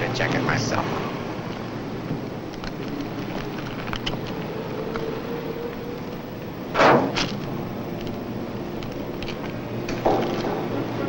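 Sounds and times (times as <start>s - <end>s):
steady background rush: 0.0s - 11.0s
sheet metal panel clanking: 6.7s - 7.4s.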